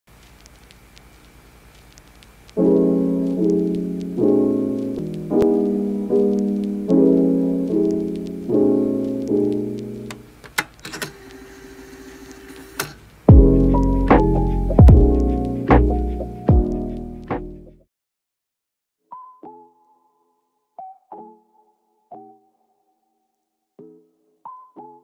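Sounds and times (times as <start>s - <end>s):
solo piano chords: 2.6s - 10.1s
sharp clicks: 9.2s - 11.4s.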